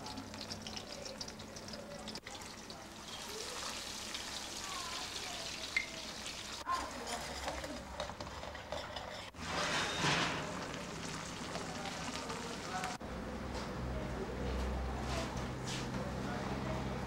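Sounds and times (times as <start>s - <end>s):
garlic sizzling in a pan: 2.3s - 6.6s, 9.4s - 13.0s.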